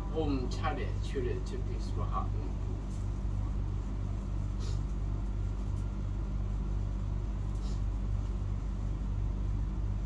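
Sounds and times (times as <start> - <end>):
low mechanical hum with throb: 0.0 - 10.0.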